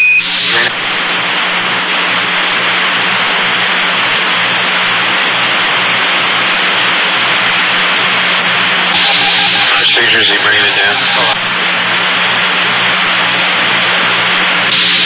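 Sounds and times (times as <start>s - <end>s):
radio static hiss: 0.0s - 1.3s, 4.8s - 11.7s, 12.5s - 15.0s.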